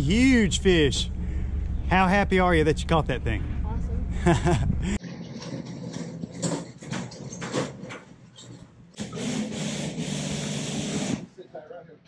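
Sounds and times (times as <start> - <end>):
hand cart rolling over concrete: 5.0 - 8.1.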